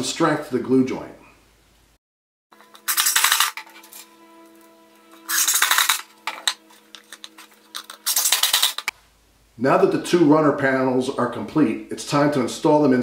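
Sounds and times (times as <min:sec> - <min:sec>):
soft background music: 0:02.6 - 0:08.6.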